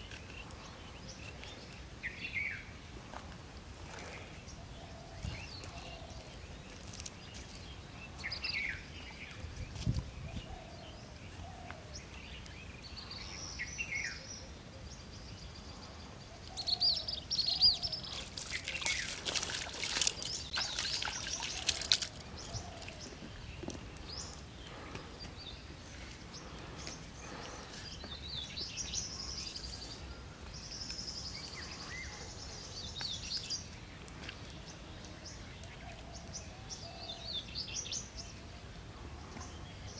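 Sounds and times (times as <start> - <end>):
birds calling and chirping: 3.9 - 39.9
water splashing: 18.0 - 23.0.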